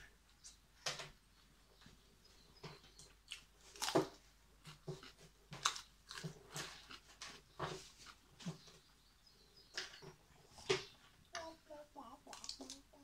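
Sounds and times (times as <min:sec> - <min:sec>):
person chewing and crunching food: 0:03.0 - 0:08.3, 0:12.3 - 0:12.8.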